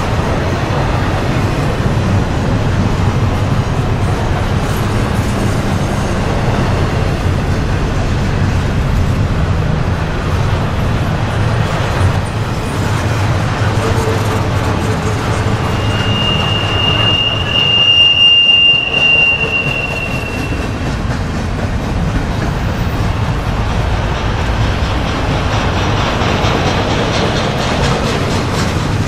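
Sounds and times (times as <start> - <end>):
freight train rolling on rails: 0.0 - 29.0
high metal squeal: 13.8 - 20.8.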